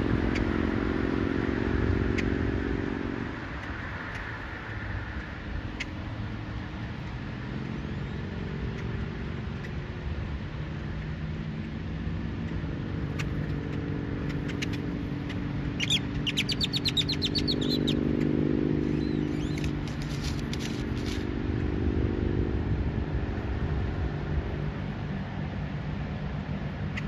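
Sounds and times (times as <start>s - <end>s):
bird chirps: 12.4s - 21.2s
small bird trilling: 13.1s - 21.2s
steady low rumble: 18.8s - 27.0s.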